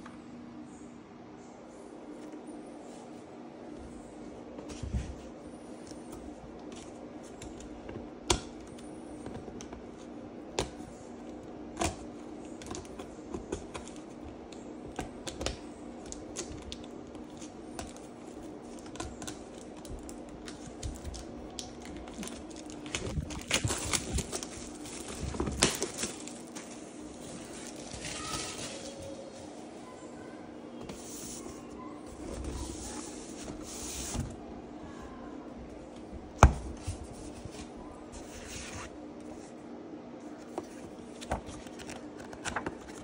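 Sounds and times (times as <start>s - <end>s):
crackly rustling: 15.4s - 29.8s.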